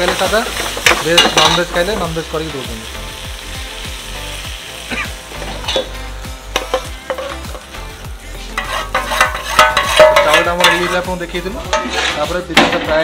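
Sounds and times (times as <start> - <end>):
chicken sizzling in a frying pan: 0.0 - 13.0
metal spatula scraping a pan: 6.6 - 7.6, 8.4 - 12.7.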